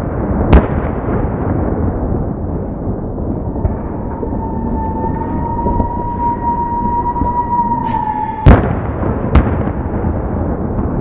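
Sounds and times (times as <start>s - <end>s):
firework bangs: 0.0s - 11.0s
fireworks display noise: 0.0s - 11.0s
firework whistle: 3.4s - 9.4s.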